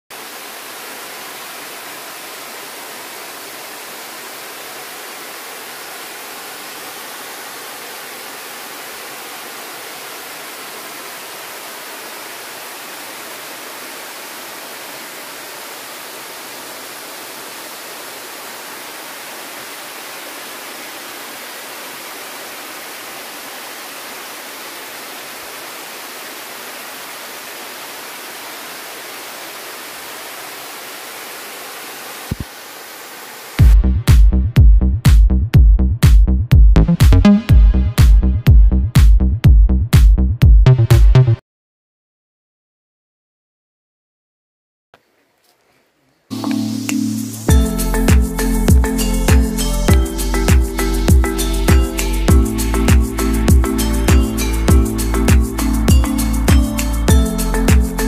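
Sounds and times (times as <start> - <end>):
water rushing over dam spillway: 0.1 - 33.7.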